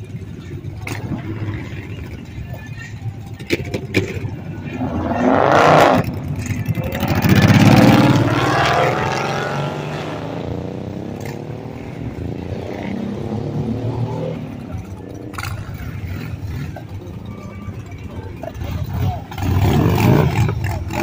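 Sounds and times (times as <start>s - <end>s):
motorcycle engines running: 0.0s - 21.0s
car engine accelerating hard: 4.0s - 17.1s, 18.6s - 21.0s.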